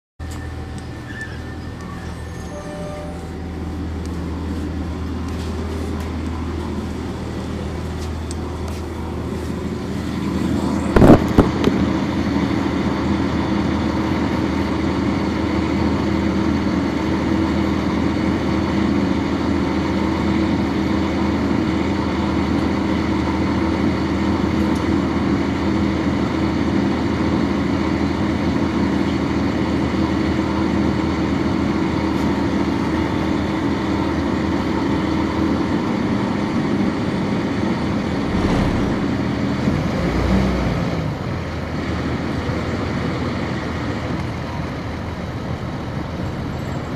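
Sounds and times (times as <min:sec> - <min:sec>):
bus diesel engine running: 0:00.2 - 0:46.9.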